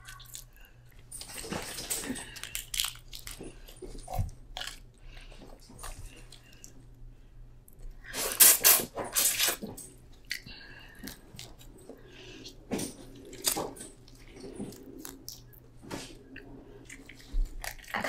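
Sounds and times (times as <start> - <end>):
wet squishing eating sounds: 10.2 - 18.0.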